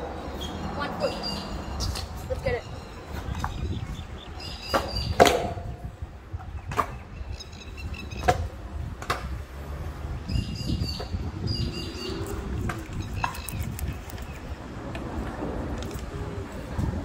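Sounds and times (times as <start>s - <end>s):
scooter wheels rolling on concrete: 0.0s - 17.0s
scooters clacking and knocking: 4.6s - 7.2s, 8.0s - 9.6s.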